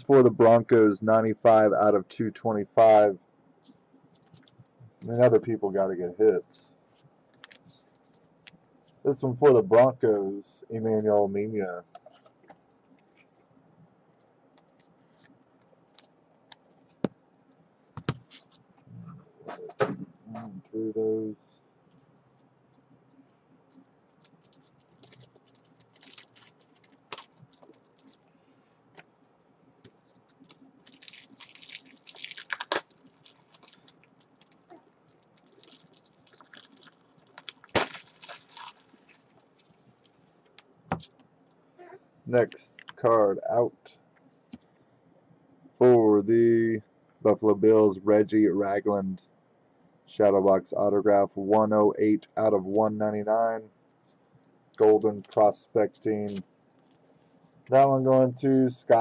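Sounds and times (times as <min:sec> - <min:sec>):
plastic card sleeves rustling: 0:06.6 - 0:09.0, 0:23.7 - 0:28.3, 0:29.8 - 0:41.2, 0:54.0 - 0:58.1.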